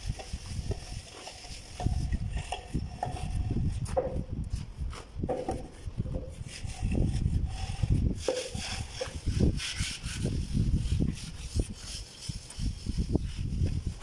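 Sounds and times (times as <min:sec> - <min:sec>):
float scraping plaster on wall: 0:00.0 - 0:04.3, 0:05.2 - 0:14.0.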